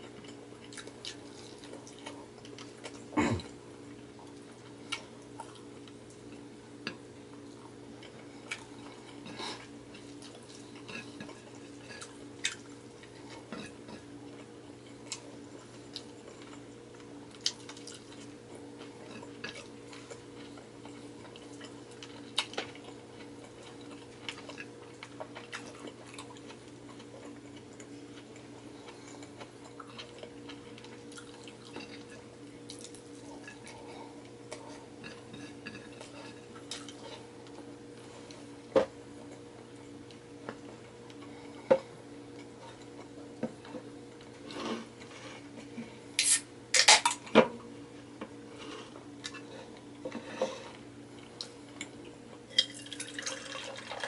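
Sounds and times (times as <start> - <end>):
chewing sounds: 0.0 - 3.6, 4.2 - 38.5.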